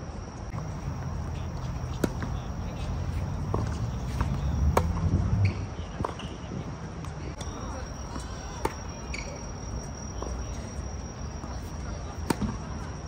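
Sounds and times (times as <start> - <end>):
tennis ball hit by rackets: 1.6 - 2.5, 3.1 - 5.0.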